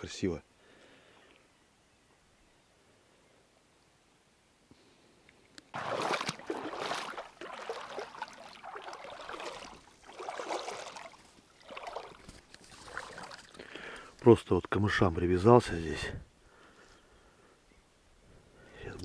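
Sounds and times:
wading through shallow water: 5.7s - 14.2s.

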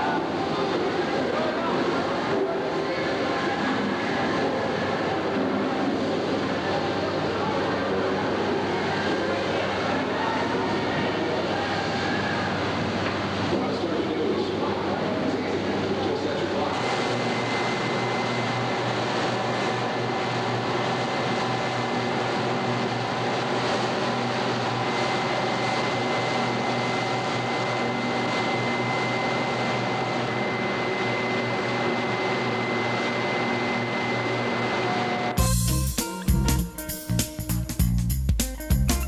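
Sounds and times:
thin steady whine: 0.0s - 37.8s
music: 35.4s - 39.0s.

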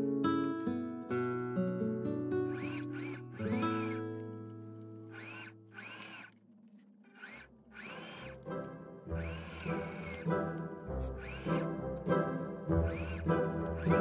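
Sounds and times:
guitar music: 0.0s - 5.7s, 8.4s - 14.0s
sewing machine whirring: 2.5s - 12.0s, 12.7s - 14.0s.

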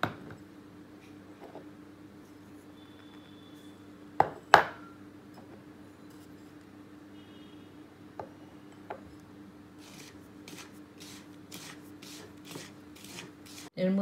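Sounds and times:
hand rubbing flour rustling: 9.8s - 13.7s.

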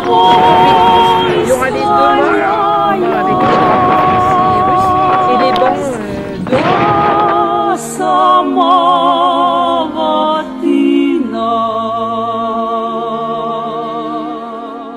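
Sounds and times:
sustained lower notes: 0.0s - 9.8s
singing voices with vibrato: 0.0s - 14.9s.

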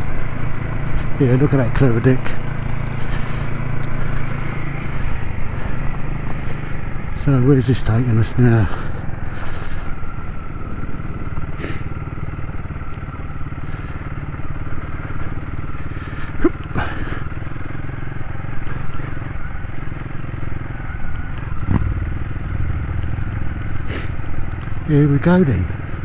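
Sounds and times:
motorcycle engine running: 0.0s - 26.0s
motorcycle knocks and clatters: 21.6s - 22.0s.

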